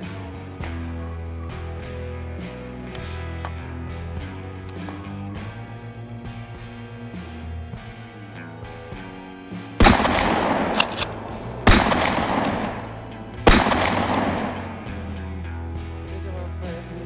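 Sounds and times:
guitar music: 0.0 - 17.0
rifle shots with echo: 9.8 - 15.3.

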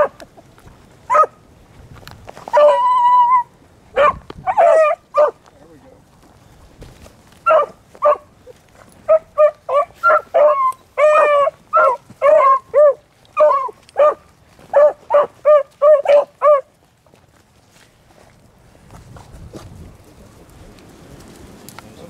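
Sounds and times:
dogs barking: 0.0 - 0.3, 1.1 - 1.4, 2.5 - 5.4, 7.4 - 16.8
dog baying: 2.5 - 5.4, 9.0 - 16.7.

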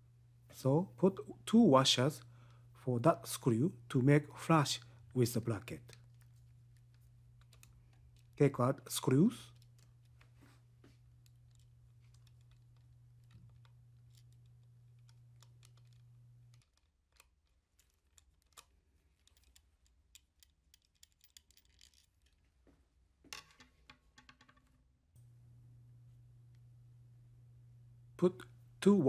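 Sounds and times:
low steady hum: 0.0 - 23.3, 25.2 - 29.0
light clicks of small parts: 4.7 - 22.8.

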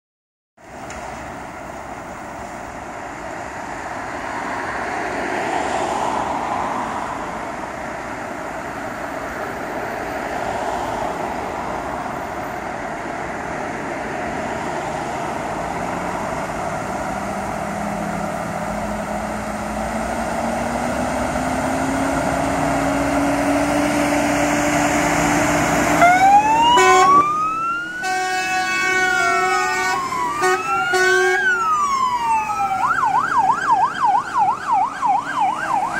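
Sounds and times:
diesel fire truck engines: 0.6 - 35.9
electronic sirens wailing: 24.9 - 35.9.

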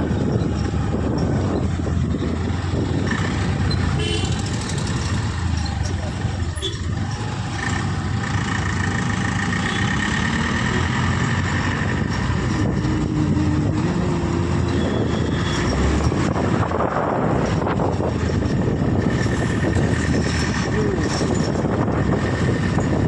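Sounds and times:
road and traffic noise: 0.0 - 23.0
trucks running: 0.0 - 23.0
scooter engine running: 3.3 - 10.0.

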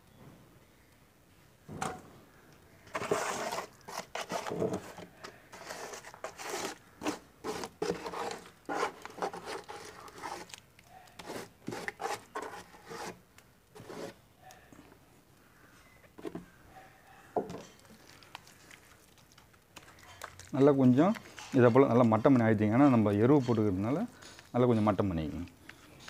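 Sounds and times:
wet soil scraping in plastic: 2.9 - 14.2.

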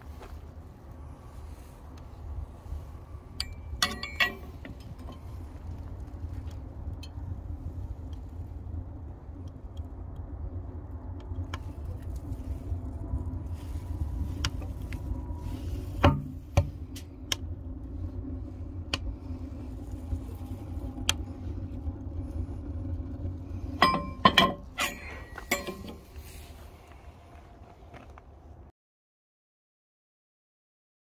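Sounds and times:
wood fire crackling: 0.0 - 27.5
metallic clinks: 3.4 - 5.2, 23.8 - 26.2.

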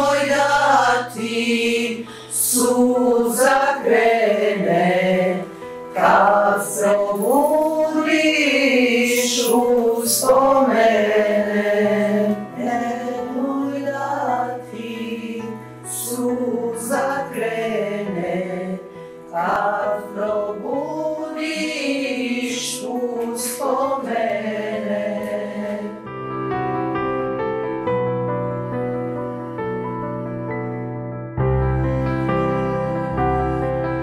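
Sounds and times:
women singing a hymn: 0.0 - 26.1
soft instrumental music: 0.0 - 34.0.

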